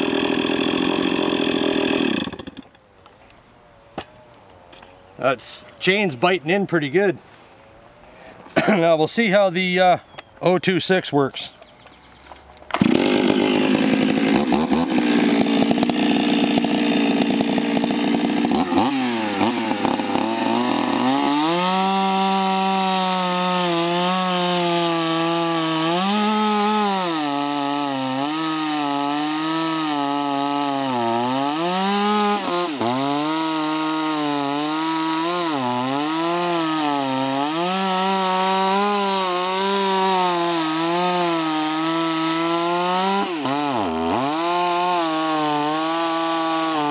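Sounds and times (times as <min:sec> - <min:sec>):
chainsaw cutting through log: 0:00.0 - 0:02.8, 0:12.7 - 0:46.9.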